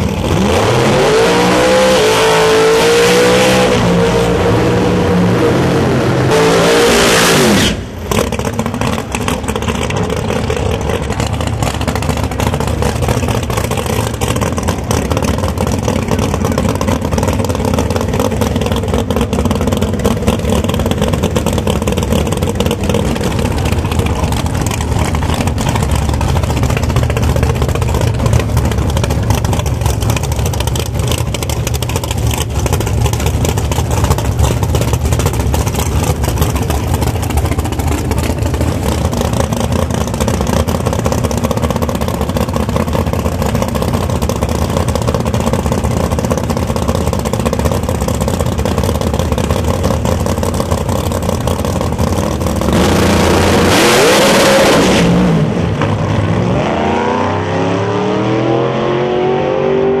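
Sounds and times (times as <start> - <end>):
drag car engines idling roughly: 0.0 - 0.5, 7.8 - 53.7
full-throttle engine launch: 0.0 - 60.0.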